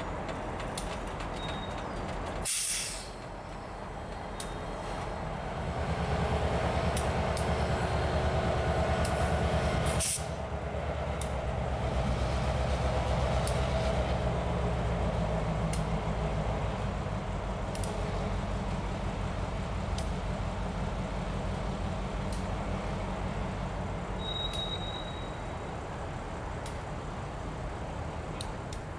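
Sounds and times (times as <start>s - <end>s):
diesel locomotive engine running: 0.0s - 28.9s
sharp light ticks: 0.3s - 1.6s, 3.5s - 4.6s, 6.9s - 7.5s, 9.0s - 9.2s, 11.2s - 11.4s, 13.4s - 13.6s, 15.7s - 15.9s, 17.7s - 18.0s, 19.9s - 20.2s, 22.3s - 22.5s, 24.2s - 24.9s, 26.6s - 26.8s, 28.4s - 28.9s
brief hiss: 2.4s - 3.2s, 9.1s - 10.4s.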